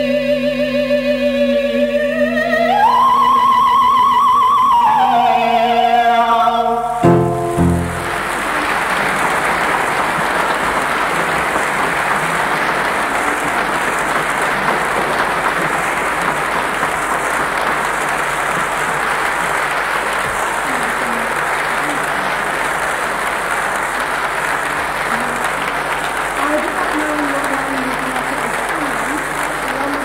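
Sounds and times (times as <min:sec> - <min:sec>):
audience applauding: 0:07.0 - 0:30.0.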